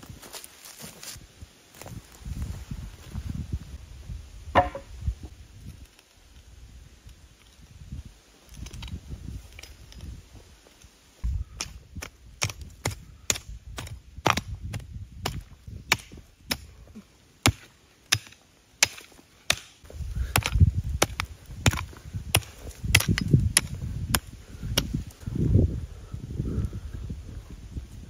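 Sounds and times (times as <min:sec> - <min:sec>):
blade chopping into wood: 0:04.6 - 0:04.9, 0:12.4 - 0:16.7, 0:17.4 - 0:24.9.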